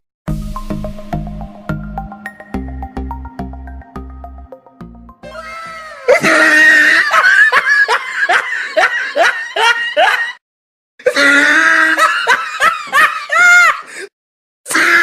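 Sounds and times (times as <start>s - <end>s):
high-pitched laughter: 5.3s - 10.4s, 11.0s - 13.9s.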